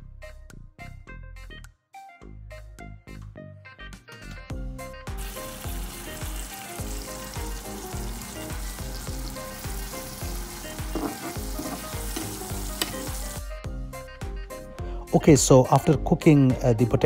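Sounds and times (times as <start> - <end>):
background music beat: 0.0 - 17.0
potatoes sizzling in oil: 5.1 - 13.5
spatula scraping a pan: 8.6 - 13.1.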